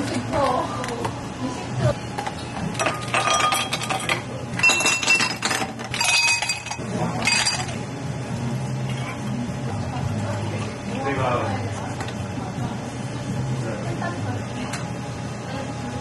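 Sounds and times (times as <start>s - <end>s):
ice cubes clinking in glasses: 2.8s - 7.8s.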